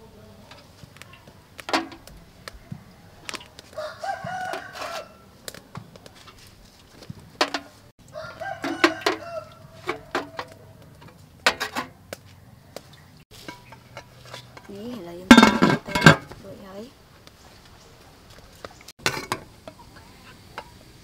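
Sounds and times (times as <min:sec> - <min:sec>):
metal cups clinking on metal tray: 0:00.5 - 0:02.1, 0:07.4 - 0:07.8, 0:08.4 - 0:12.0, 0:13.4 - 0:16.4, 0:19.0 - 0:20.8.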